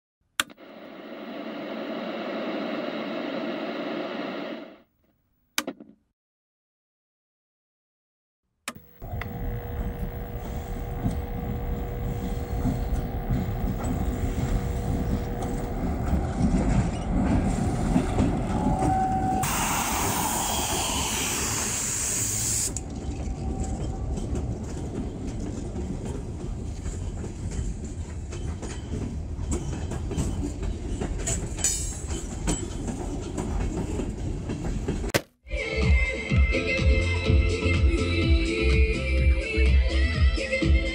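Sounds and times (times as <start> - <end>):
freight train rumbling past: 9.3 - 35.0
loud hiss: 19.4 - 22.8.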